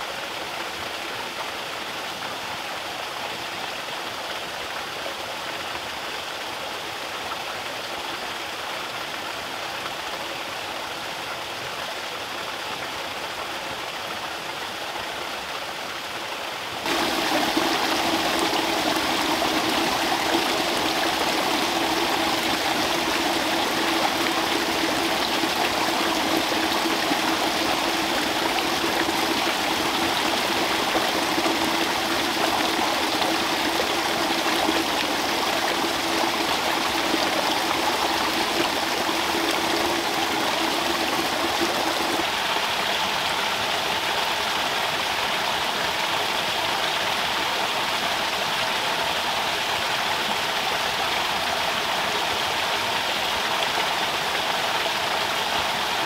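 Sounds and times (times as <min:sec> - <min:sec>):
water splashing into pond: 0:16.6 - 0:44.2.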